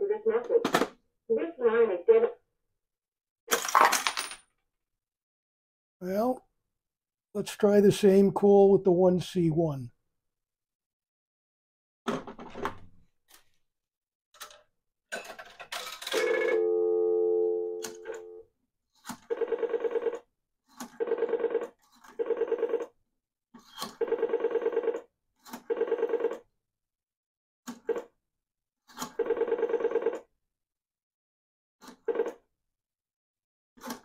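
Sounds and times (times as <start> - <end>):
telephone dial tone: 16.1 - 18.4, 19.3 - 20.3, 20.9 - 23.0, 24.0 - 26.4, 29.1 - 30.3.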